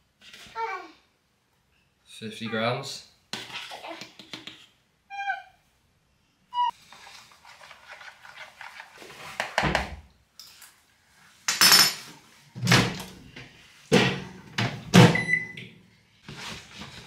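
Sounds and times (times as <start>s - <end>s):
microwave beep: 15.1s - 15.7s.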